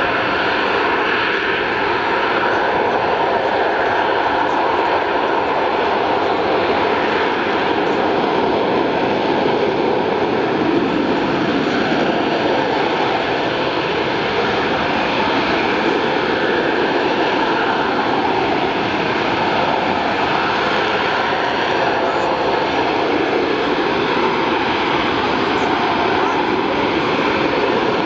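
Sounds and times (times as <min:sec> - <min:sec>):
jet engine hovering: 0:00.0 - 0:28.0.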